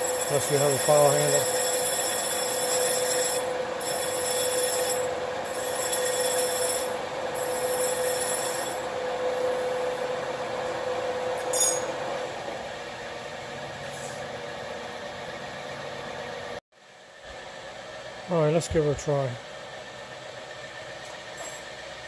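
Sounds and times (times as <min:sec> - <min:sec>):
lathe running: 0:00.0 - 0:13.4.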